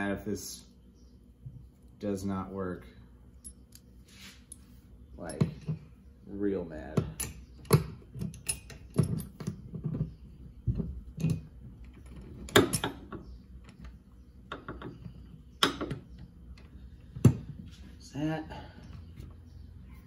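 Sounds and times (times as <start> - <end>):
metal clicks and knocks of hand tools: 7.0 - 10.0.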